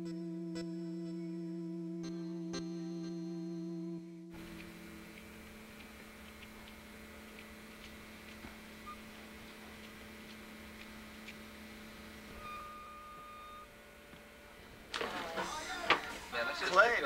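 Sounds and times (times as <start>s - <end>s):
faint steady hum: 0.0s - 17.0s
light ticks: 4.4s - 11.4s.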